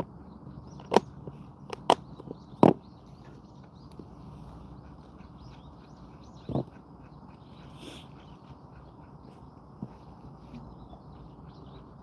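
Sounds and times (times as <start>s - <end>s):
high chirping: 0.2s - 12.0s
outdoor hiss: 7.6s - 8.4s.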